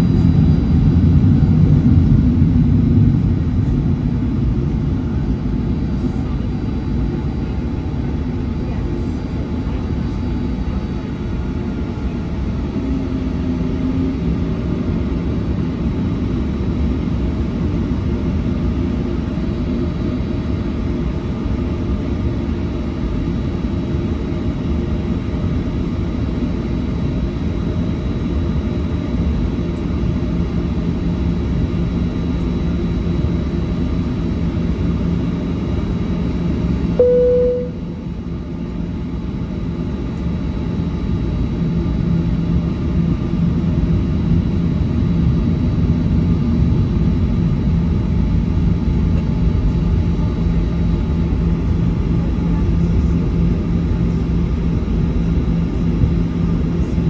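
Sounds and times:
jet engines rumbling in cabin: 0.0 - 57.0
short single tone: 37.0 - 38.2.

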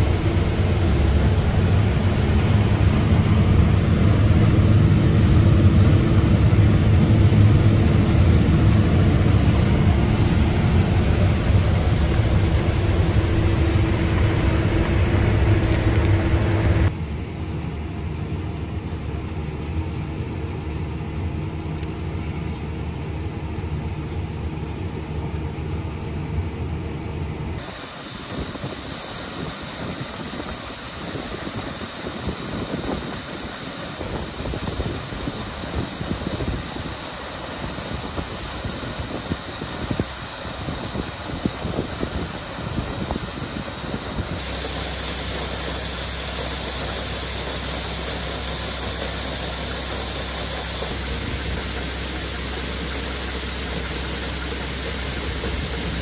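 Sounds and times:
combine harvester drone: 0.0 - 56.0
low machine rumble: 0.0 - 56.0
corn pouring into hopper: 27.6 - 56.0.

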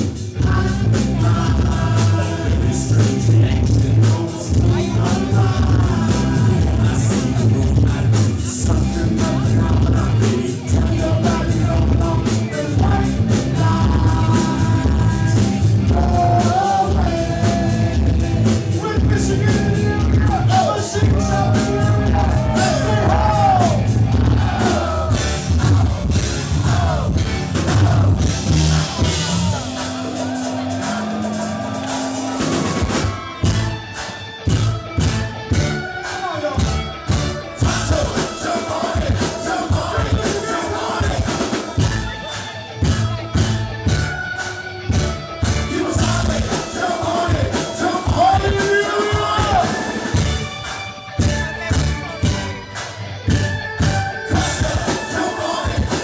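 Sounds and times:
live rock band: 0.0 - 56.0
person singing: 0.3 - 33.5, 37.6 - 42.8, 45.6 - 50.1, 54.2 - 56.0
electric guitar sliding notes: 13.2 - 55.8.

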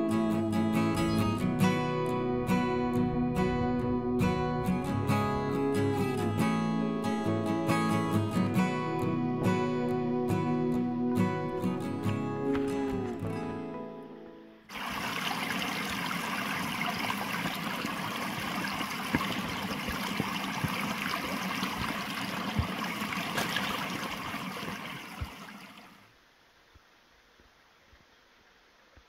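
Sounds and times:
stream rushing over rocks: 14.7 - 26.2.

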